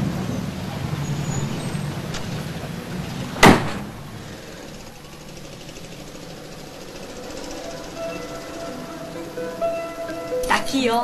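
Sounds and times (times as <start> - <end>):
street traffic: 0.0 - 11.0
vehicle engine rumbling: 0.0 - 11.0
vehicle door slamming: 3.3 - 4.3.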